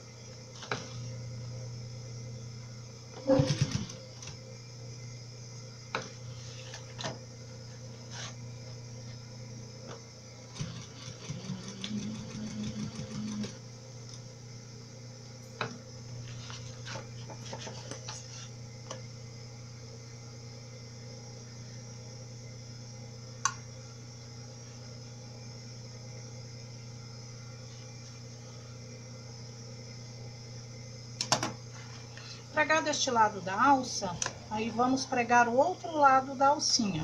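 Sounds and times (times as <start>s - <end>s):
sewing machine stitching: 3.3s - 4.0s, 10.5s - 13.6s.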